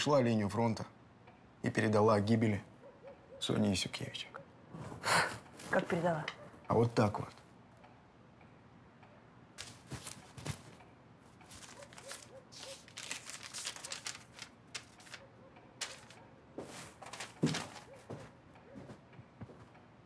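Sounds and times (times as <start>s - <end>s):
paper rustling: 9.6s - 10.8s, 11.4s - 18.3s.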